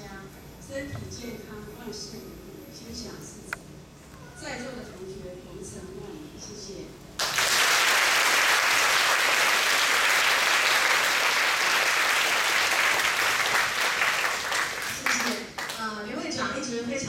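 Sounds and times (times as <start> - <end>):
audience applauding: 7.2 - 15.8.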